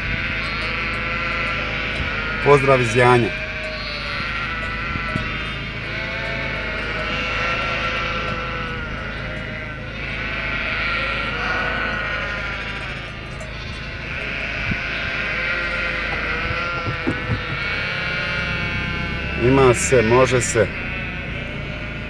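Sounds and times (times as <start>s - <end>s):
sheep bleating: 0.0s - 22.0s
short knocks: 16.0s - 17.9s.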